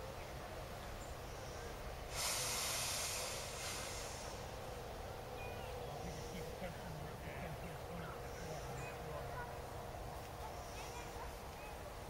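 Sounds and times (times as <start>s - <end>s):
propane burner hissing: 2.0s - 5.0s.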